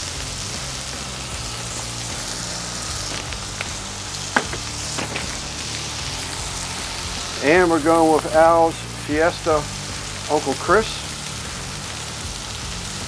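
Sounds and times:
burger patties sizzling on griddle: 0.0s - 13.0s
sharp oil pops: 2.9s - 5.8s.

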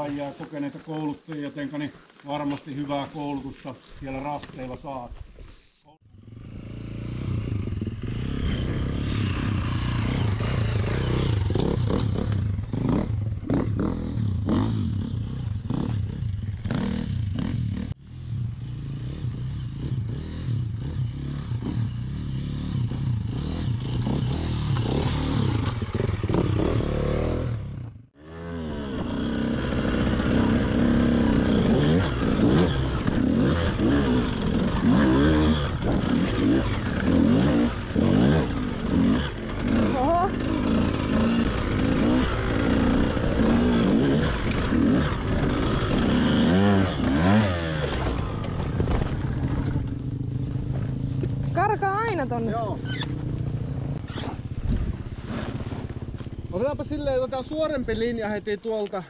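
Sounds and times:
dirt bike revving: 6.0s - 57.3s
dirt bike engines running: 6.1s - 59.0s
knocks and clatter: 47.8s - 51.5s.

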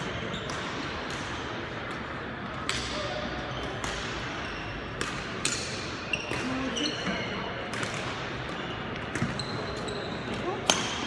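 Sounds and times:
murmur of the hall: 0.0s - 11.0s
racket hitting shuttlecock: 0.4s - 6.6s, 7.6s - 9.4s.

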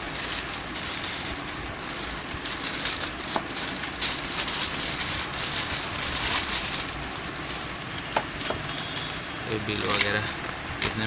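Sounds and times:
plastic packaging crinkling: 0.0s - 8.6s.

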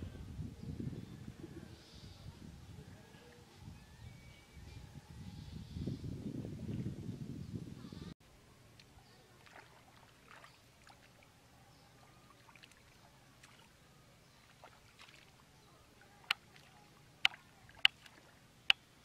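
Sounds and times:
sloshing in muddy water: 8.8s - 18.7s.

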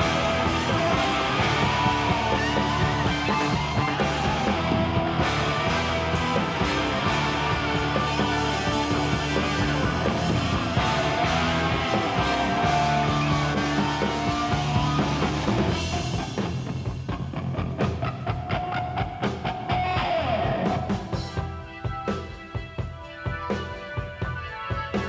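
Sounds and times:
bass: 0.0s - 25.0s
electric guitar holding long notes: 0.0s - 25.0s.

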